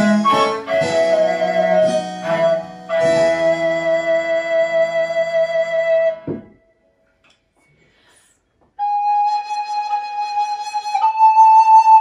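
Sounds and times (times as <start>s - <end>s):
recorder and viol chord: 0.0s - 4.3s.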